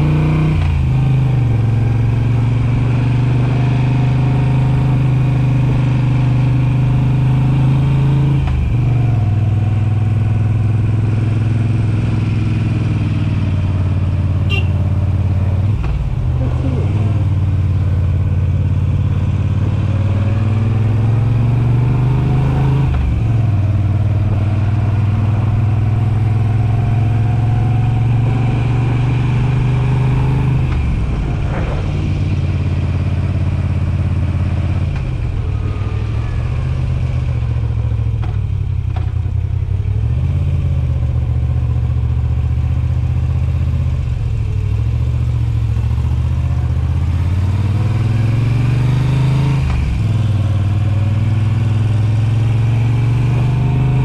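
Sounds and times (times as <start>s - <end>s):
motorcycle engine exhaust note: 13.5s - 15.4s.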